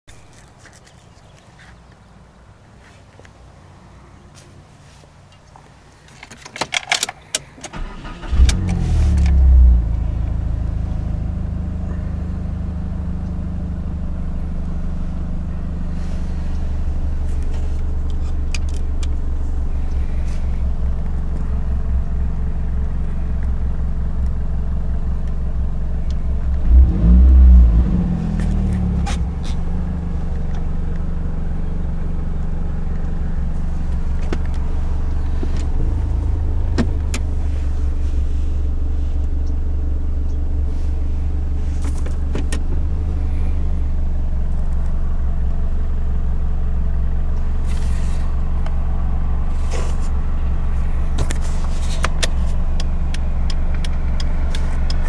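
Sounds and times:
ignition clicks: 6.4s - 10.4s, 51.1s - 55.0s
car engine starting and idling: 6.7s - 55.0s.

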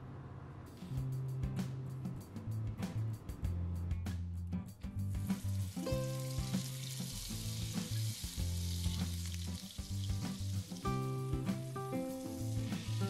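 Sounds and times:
background music: 0.8s - 13.0s
butter sizzling in a pan: 5.2s - 13.0s.

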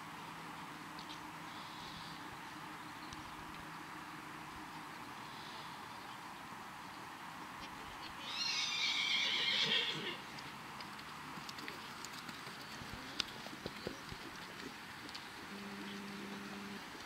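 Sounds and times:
faint clicks of hoofbeats: 0.0s - 8.2s, 10.2s - 17.0s
horse neighing: 8.2s - 10.2s.

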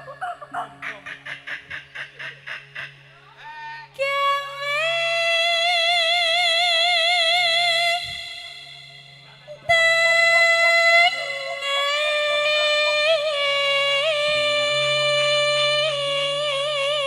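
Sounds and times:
woman singing: 4.0s - 17.0s.

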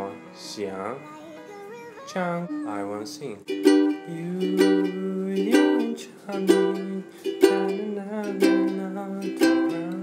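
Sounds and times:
man singing: 2.0s - 10.0s
ukulele strumming: 2.4s - 10.0s.

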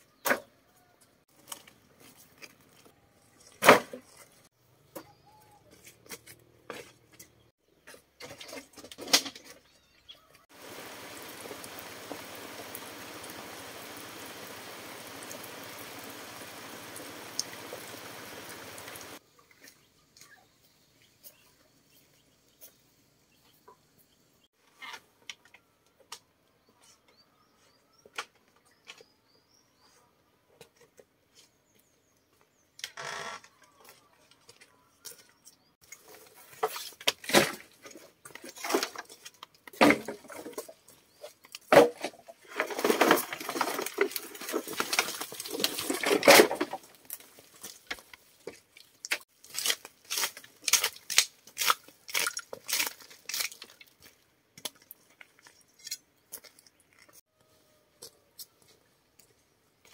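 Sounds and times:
scraping and rustling: 35.9s - 50.5s.

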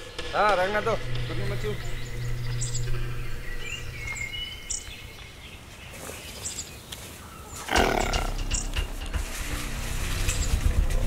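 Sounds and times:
faint bird chirps: 1.6s - 8.7s
rough animal growl: 7.6s - 8.5s.

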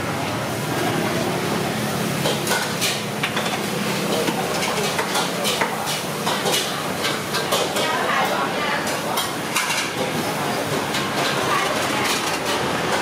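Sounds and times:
ladle plates and pots clinking: 2.2s - 13.0s
murmur of voices: 3.7s - 13.0s.

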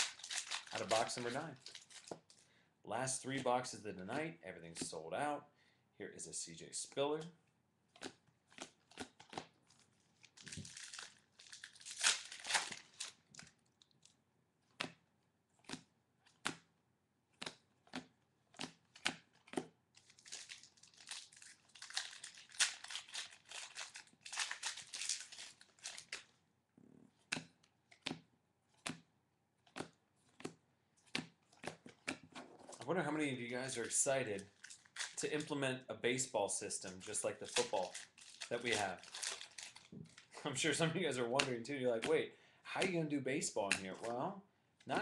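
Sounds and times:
card pack wrappers tearing: 0.0s - 2.4s, 8.0s - 14.1s, 19.0s - 26.4s, 32.6s - 35.6s, 36.7s - 42.0s
cards flicked and tapped: 15.6s - 16.7s, 17.4s - 19.8s, 27.2s - 29.1s, 29.7s - 32.4s.

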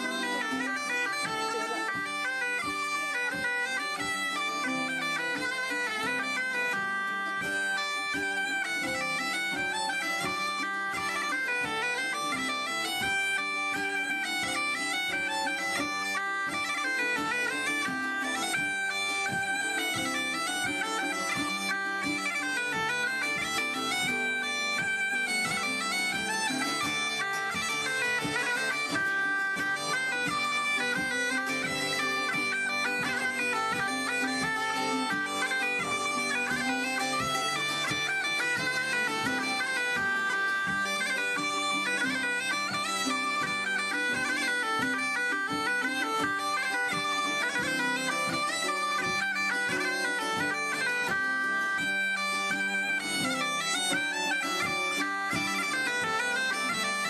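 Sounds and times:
bagpipes playing: 0.0s - 57.0s.

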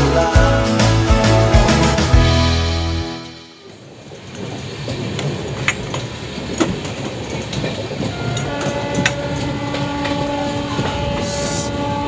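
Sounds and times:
train rumbling on track: 3.4s - 12.0s
wheels clicking over rail joints: 3.6s - 12.0s.

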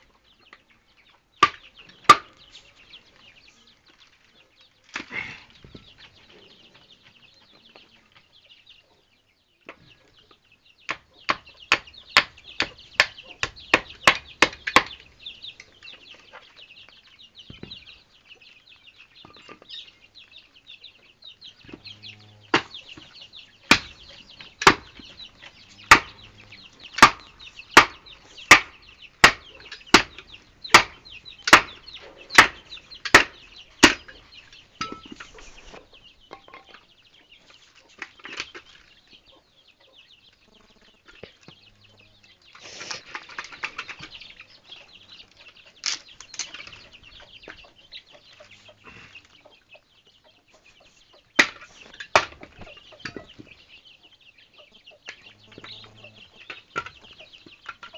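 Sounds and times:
birds chattering: 0.0s - 57.9s
hand tool chopping wood: 1.4s - 2.4s, 10.9s - 15.1s, 22.6s - 34.2s, 51.4s - 53.3s.

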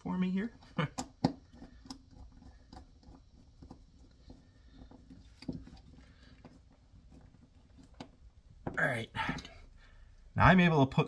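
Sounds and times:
faint ticks and scrapes: 1.4s - 9.6s.

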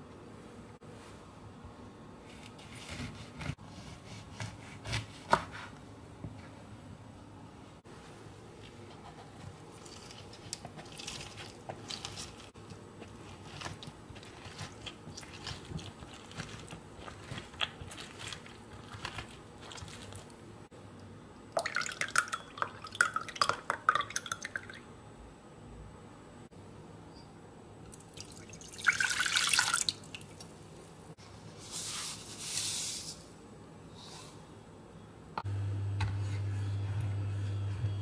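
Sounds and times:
wet squelches of citrus juicer: 9.8s - 20.4s
juice splashing and trickling: 27.9s - 30.5s.

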